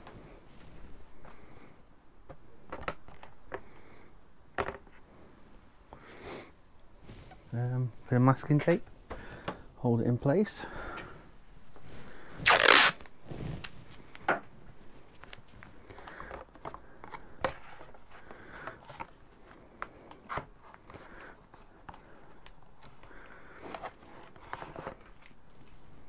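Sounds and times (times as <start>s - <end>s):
cardboard crinkling and tapping: 2.2s - 3.7s
masking tape tearing: 12.4s - 13.1s.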